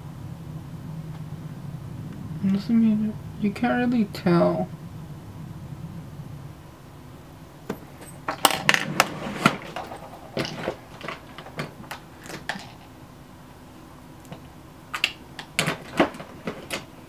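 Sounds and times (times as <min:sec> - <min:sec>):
plastic items clicking and clattering: 0:07.7 - 0:12.9, 0:15.0 - 0:16.9.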